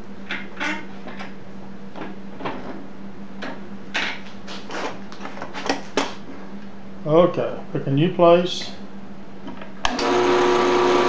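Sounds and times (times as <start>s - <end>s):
drill press humming: 9.8s - 11.0s.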